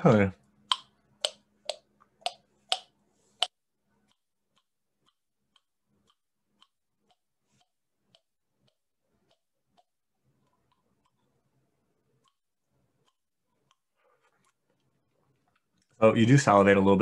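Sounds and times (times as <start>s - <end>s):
jaw exerciser clicking: 0.6s - 11.4s, 12.1s - 15.0s.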